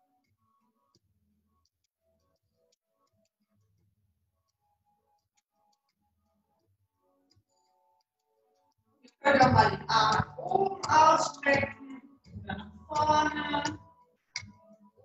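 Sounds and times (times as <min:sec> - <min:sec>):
person singing over music: 0:09.2 - 0:13.8.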